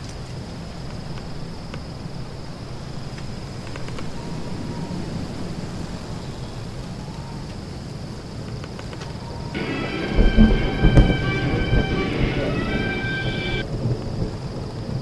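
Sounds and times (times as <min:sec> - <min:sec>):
low rumbling noise: 0:09.6 - 0:13.8.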